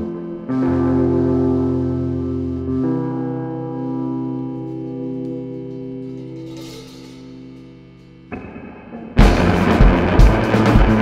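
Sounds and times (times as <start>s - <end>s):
instrumental rock band: 8.3s - 11.0s.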